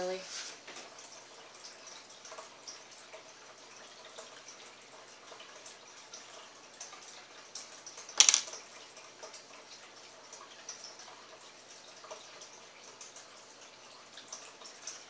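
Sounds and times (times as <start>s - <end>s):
clatter of small hard object: 8.2s - 8.6s.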